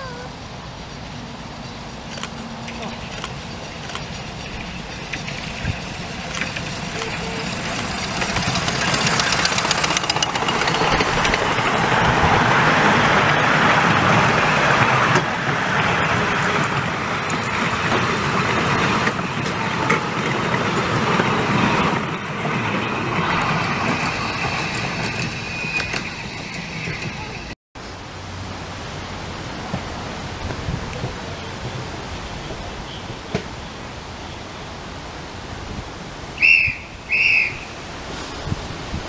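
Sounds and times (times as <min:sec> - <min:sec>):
train wheels rumbling over rails: 0:00.0 - 0:34.2
steam locomotive passing: 0:00.0 - 0:39.0
rail clicks: 0:01.6 - 0:27.6
thin high squeal: 0:21.9 - 0:27.5.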